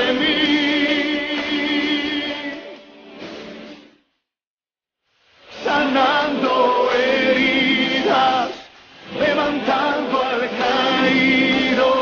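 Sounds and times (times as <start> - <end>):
group singing worship song: 0.0 - 2.8, 5.6 - 12.0
music: 0.0 - 4.3, 5.3 - 12.0.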